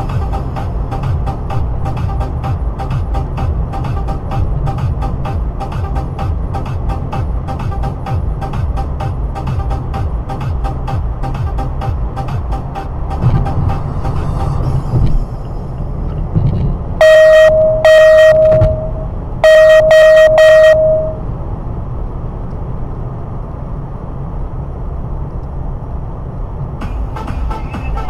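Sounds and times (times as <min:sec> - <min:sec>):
car driving rumble: 0:00.0 - 0:28.0
car horn honking: 0:17.0 - 0:21.3.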